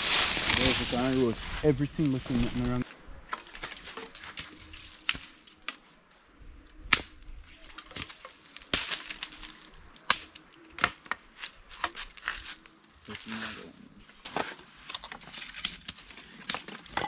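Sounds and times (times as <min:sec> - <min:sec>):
dry sticks cracking: 0:02.0 - 0:13.4, 0:14.8 - 0:17.0.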